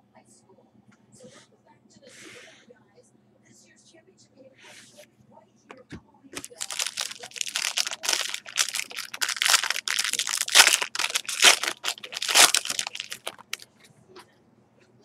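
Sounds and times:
wrapper crinkling: 0:06.4 - 0:13.6.

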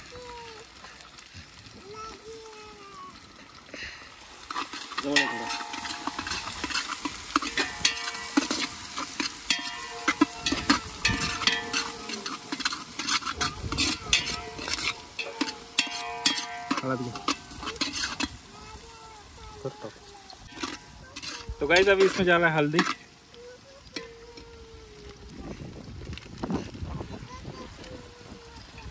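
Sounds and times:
food sizzling: 0:00.0 - 0:28.9
spoon scraping a pan: 0:04.4 - 0:18.4, 0:20.4 - 0:23.1.

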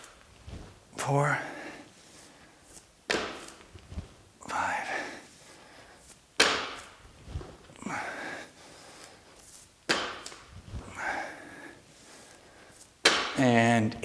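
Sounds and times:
heavy breath: 0:01.2 - 0:02.8, 0:04.4 - 0:06.2, 0:07.3 - 0:09.5, 0:10.7 - 0:12.9.

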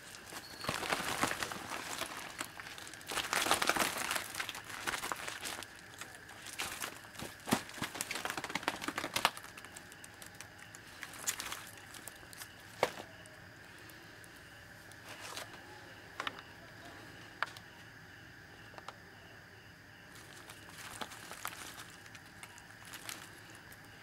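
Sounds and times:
plastic sack crinkling: 0:00.0 - 0:13.1, 0:20.1 - 0:24.0.

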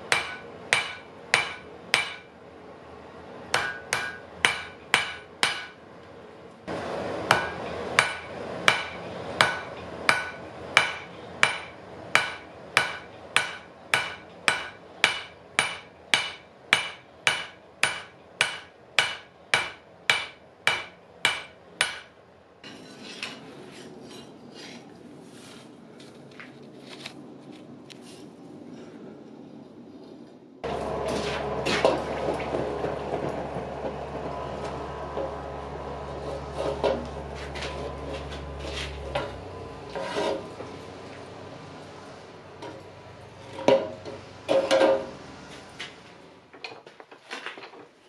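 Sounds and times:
hammer blows on anvil: 0:03.5 - 0:05.8, 0:07.3 - 0:22.1.

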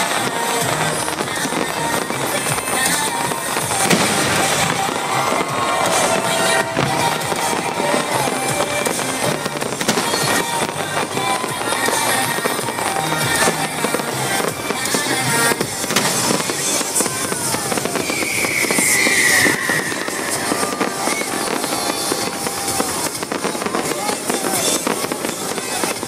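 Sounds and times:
crowd voices: 0:00.0 - 0:26.0
fireworks crackling and popping: 0:00.0 - 0:26.0
loud music: 0:00.0 - 0:26.0
shrill falling whistle: 0:17.8 - 0:21.5.

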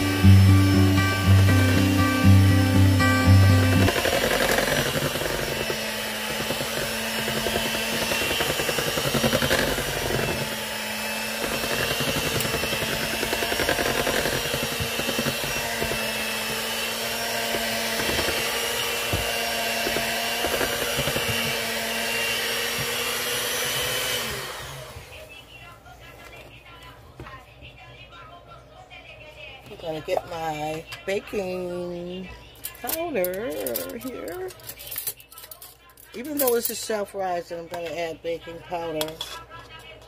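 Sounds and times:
beaters churning batter: 0:00.0 - 0:25.2
electric hand mixer humming: 0:00.0 - 0:25.4.

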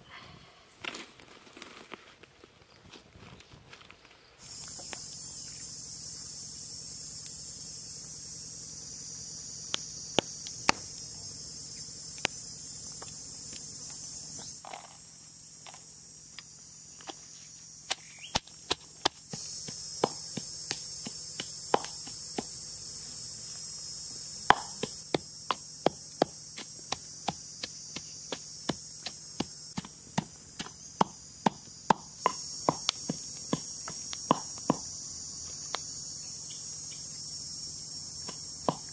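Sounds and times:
high-pitched insect buzz: 0:04.4 - 0:38.9
pestle pounding in clay mortar: 0:24.5 - 0:34.9.

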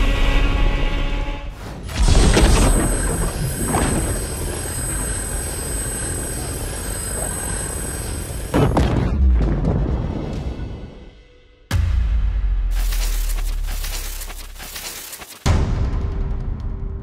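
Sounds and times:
rushing noise with high whine: 0:01.8 - 0:08.7, 0:12.7 - 0:15.5.

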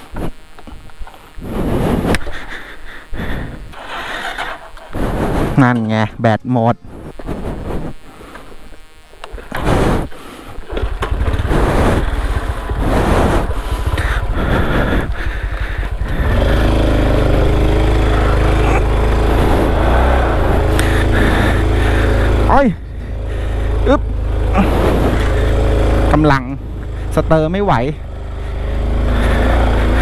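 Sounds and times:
motorcycle engine running: 0:00.0 - 0:05.6, 0:06.8 - 0:30.0
engine cranking: 0:03.7 - 0:05.0, 0:10.6 - 0:27.2.

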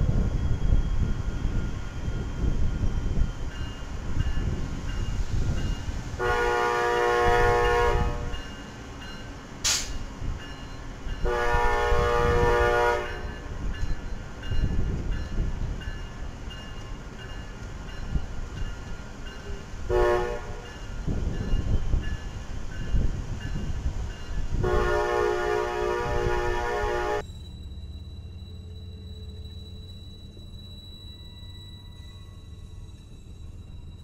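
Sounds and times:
train rumbling: 0:00.0 - 0:34.0
locomotive air horn: 0:06.2 - 0:08.4, 0:11.2 - 0:13.4, 0:19.9 - 0:20.7, 0:24.6 - 0:27.2.

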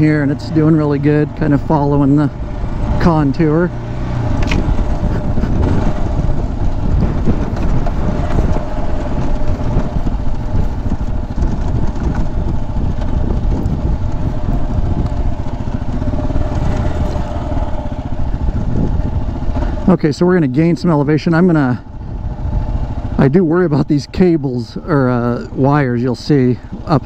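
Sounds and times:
motorcycle engine running: 0:00.0 - 0:27.0.

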